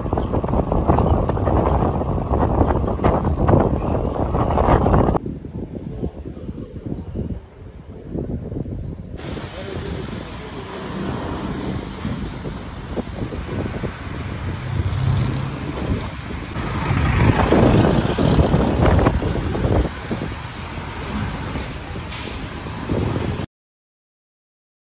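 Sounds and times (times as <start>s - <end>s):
wind buffeting microphone: 0.0s - 23.5s
motor vehicle running: 9.2s - 23.4s.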